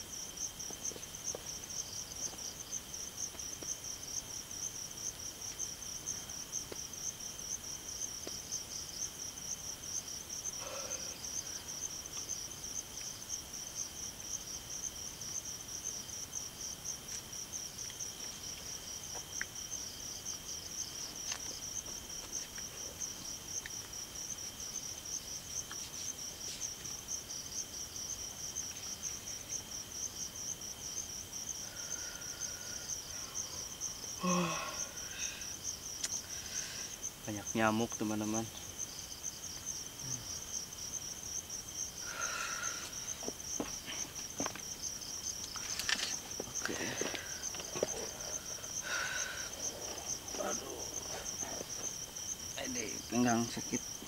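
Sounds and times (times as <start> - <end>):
night insects chirring: 0.0 - 54.0.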